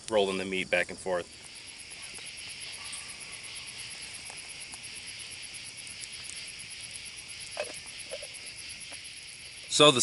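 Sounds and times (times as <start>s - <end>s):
crickets trilling: 0.0s - 10.0s
fast regular insect ticking: 0.0s - 10.0s.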